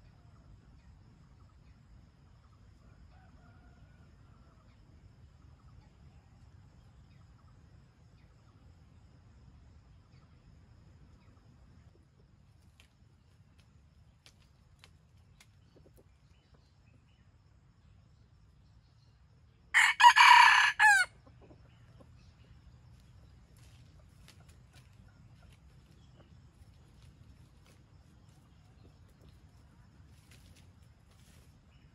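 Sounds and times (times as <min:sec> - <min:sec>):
rooster crowing: 0:19.7 - 0:21.2.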